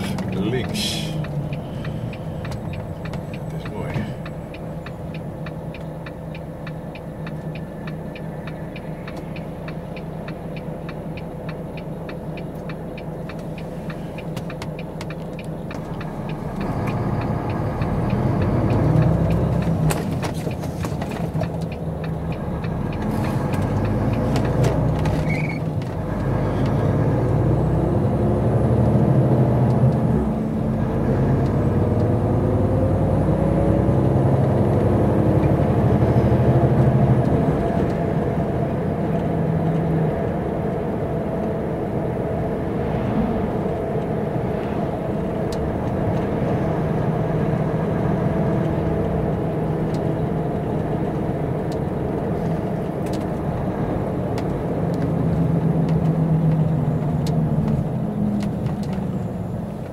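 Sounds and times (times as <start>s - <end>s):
engine ticking: 0.0s - 27.6s
truck diesel engine: 0.0s - 59.9s.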